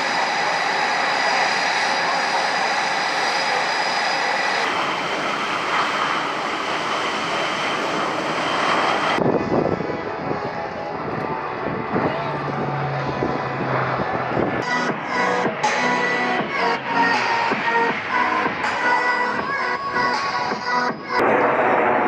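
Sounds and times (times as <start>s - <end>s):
aircraft flying: 0.0s - 22.0s
jet engines running: 0.0s - 22.0s.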